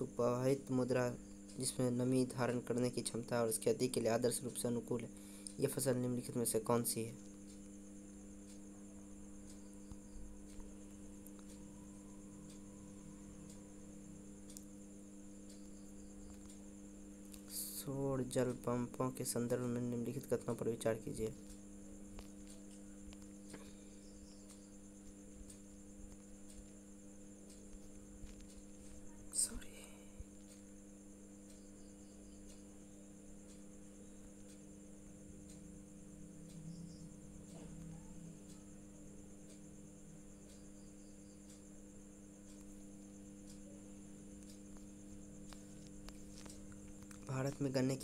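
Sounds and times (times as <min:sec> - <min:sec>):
high steady chirring: 0:00.0 - 0:48.0
low hum: 0:00.0 - 0:48.0
soft ticks: 0:07.2 - 0:17.8, 0:21.0 - 0:48.0
faint clicks: 0:09.4 - 0:11.7, 0:14.4 - 0:14.7, 0:15.4 - 0:16.6, 0:40.4 - 0:48.0.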